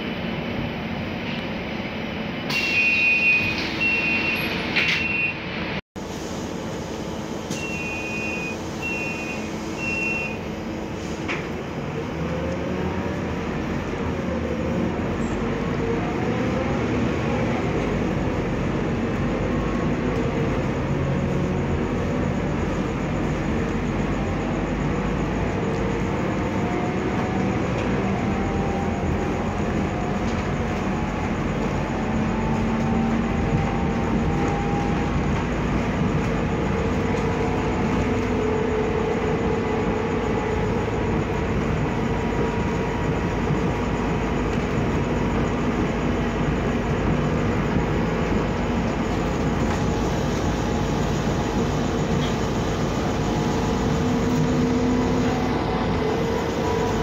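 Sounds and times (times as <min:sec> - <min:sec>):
bus engine and transmission whine: 0:00.0 - 0:57.0
cabin and road noise: 0:00.0 - 0:57.0
door warning beeps: 0:02.5 - 0:05.4, 0:07.5 - 0:10.4.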